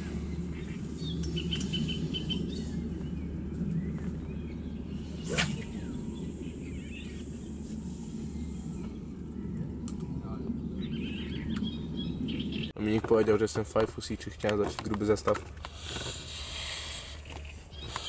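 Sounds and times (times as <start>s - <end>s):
steady low rumble: 0.0s - 14.6s
birds chirping: 0.0s - 18.0s
fishing rod whoosh: 5.0s - 8.8s
fishing line hissing off reel: 5.1s - 8.8s.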